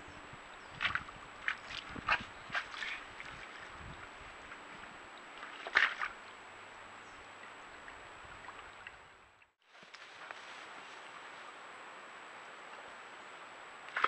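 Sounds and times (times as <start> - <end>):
steady microphone hiss: 0.0 - 14.0
water sloshing: 0.6 - 10.6.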